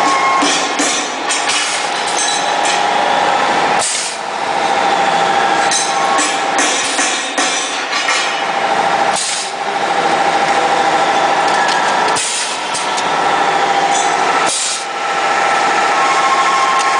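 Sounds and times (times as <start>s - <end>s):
machine mechanical hum: 0.0s - 16.9s
compressed air hissing: 3.8s - 4.3s, 9.1s - 9.6s, 14.4s - 14.9s.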